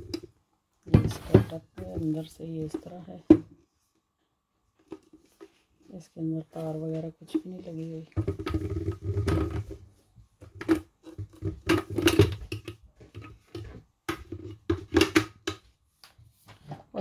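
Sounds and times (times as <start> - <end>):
hard plastic parts knocking: 8.1 - 9.8, 10.4 - 15.6.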